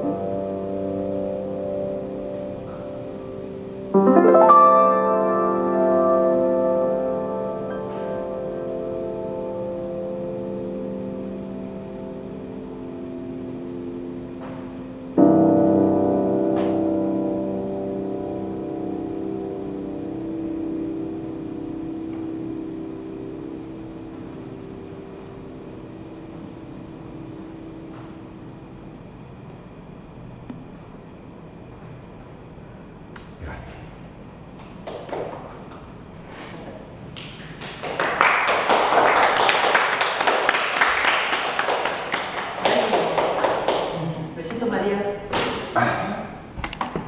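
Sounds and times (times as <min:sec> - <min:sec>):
sustained low keyboard tones: 0:00.0 - 0:31.0
hands clapping in applause: 0:34.6 - 0:35.9, 0:37.1 - 0:44.2.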